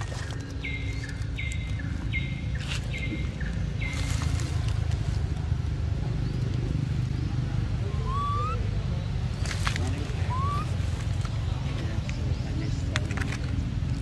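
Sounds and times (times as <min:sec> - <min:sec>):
short calls: 0:07.8 - 0:08.8, 0:10.1 - 0:10.8.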